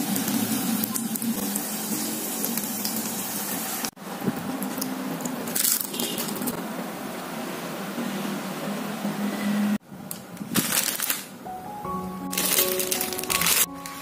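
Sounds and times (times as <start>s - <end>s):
noodles sizzling in oil: 0.0s - 4.0s
fried noodles crunching: 12.3s - 14.0s.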